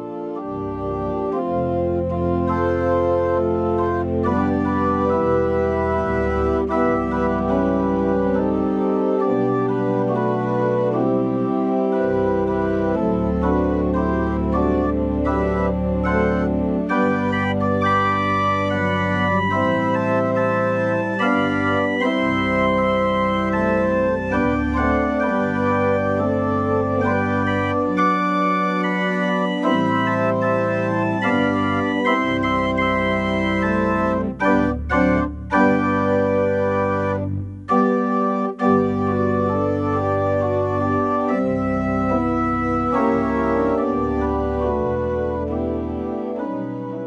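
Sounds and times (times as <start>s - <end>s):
organ playing sustained chords: 0.0s - 47.0s.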